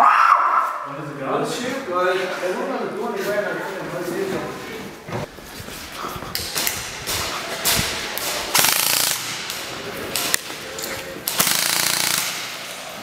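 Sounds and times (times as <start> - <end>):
airsoft guns firing bursts: 7.6 - 10.4, 11.2 - 12.9.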